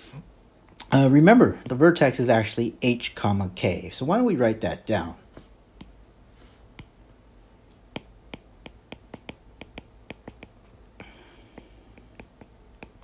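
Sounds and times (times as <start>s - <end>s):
stylus tapping on tablet: 5.4s - 6.0s, 6.7s - 7.0s, 7.7s - 13.0s.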